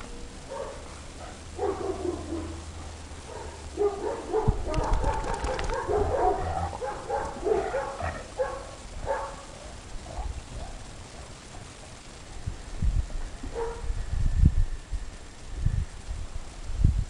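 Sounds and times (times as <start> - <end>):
dogs yipping and whining: 3.3 - 11.7.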